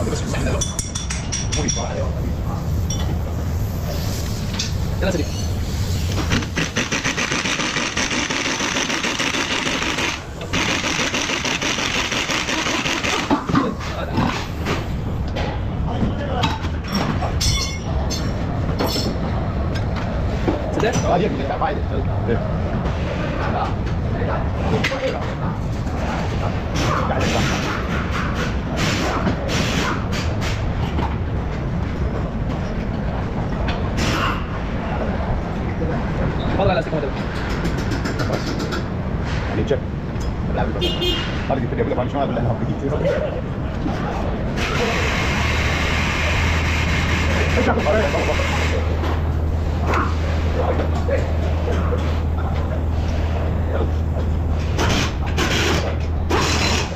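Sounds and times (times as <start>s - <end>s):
low workshop rumble: 0.0s - 56.9s
pneumatic impact wrench hammering: 5.9s - 13.6s, 54.7s - 56.9s.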